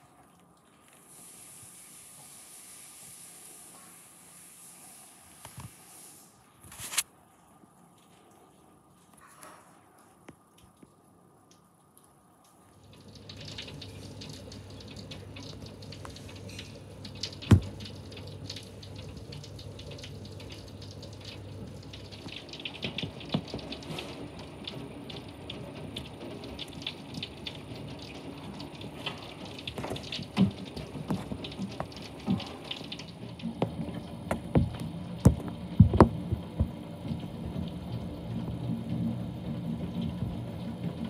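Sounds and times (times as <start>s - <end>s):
close drips and splashes: 9.8s - 38.7s
heavy rain falling: 13.0s - 41.0s.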